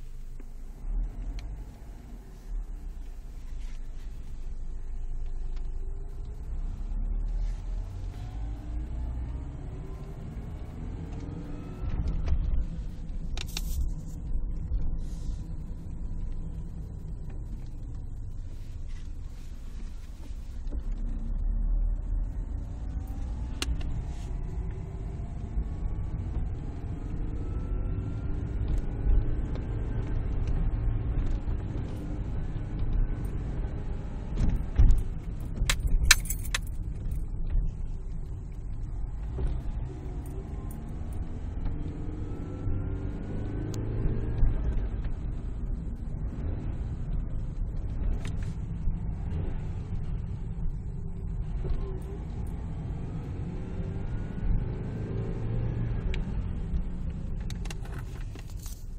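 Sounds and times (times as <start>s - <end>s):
road and engine rumble: 0.0s - 58.9s
jangle of metallic clicks: 35.7s - 36.9s.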